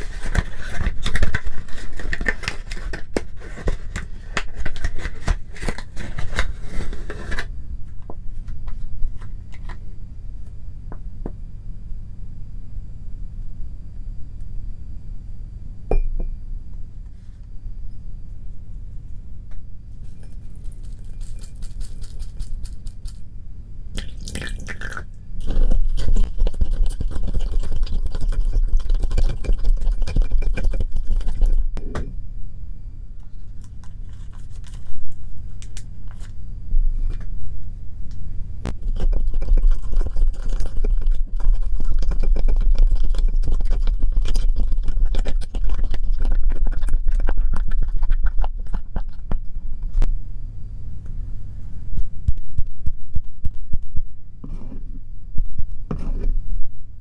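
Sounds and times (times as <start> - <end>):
plastic spoon stirring gritty slime: 0.0 - 7.5, 25.4 - 31.8, 33.3 - 35.1, 38.7 - 50.0
steady low hum: 0.0 - 57.0.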